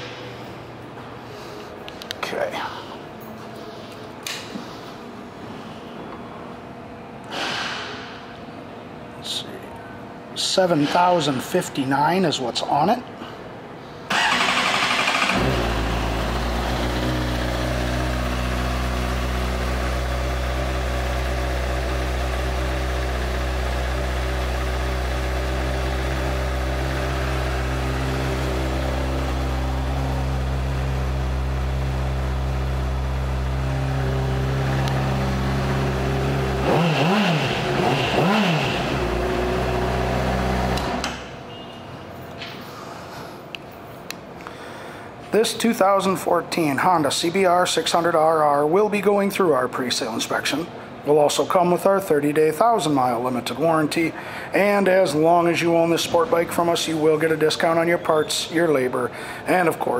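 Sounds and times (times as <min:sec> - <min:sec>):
motorcycle engine idling and revving: 0:14.1 - 0:41.2.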